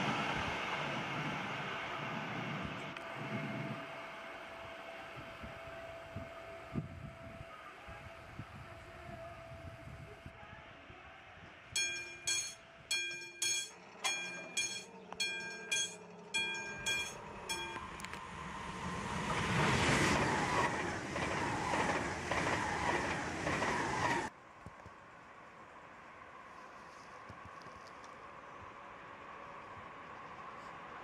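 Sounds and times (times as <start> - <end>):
train passing at speed: 0.0 - 8.4, 11.8 - 24.4
level crossing warning bell: 11.8 - 18.1.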